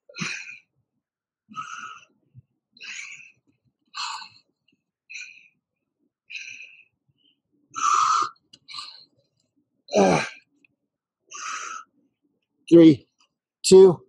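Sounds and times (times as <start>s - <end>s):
man grunting: 9.9s - 10.4s.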